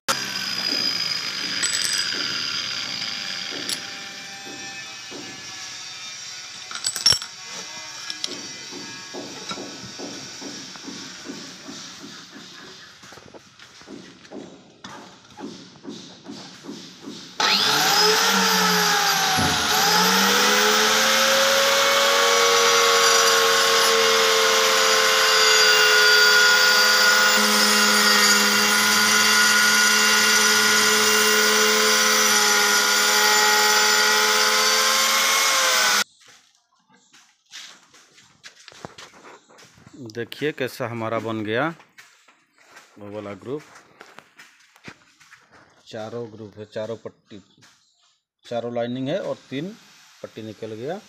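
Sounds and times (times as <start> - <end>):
electric stone cutter whine: 0.1 - 13.1, 17.4 - 36.1, 49.0 - 51.0.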